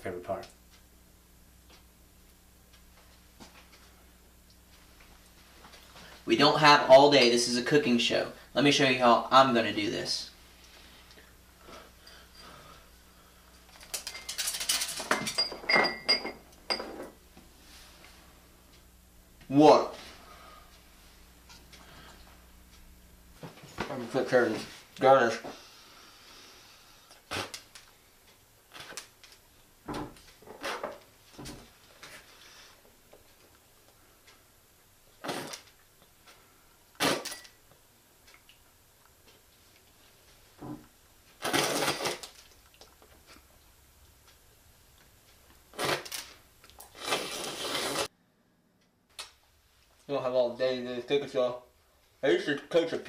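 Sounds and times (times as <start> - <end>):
glass clinks: 14.1 - 17.0.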